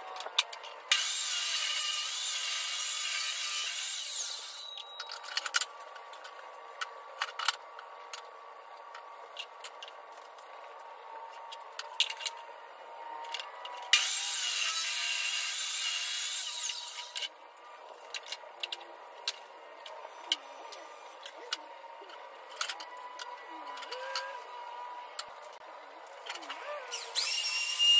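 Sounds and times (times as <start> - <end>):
table saw cutting a board: 0.9 - 4.8, 13.9 - 17.2, 26.6 - 27.9.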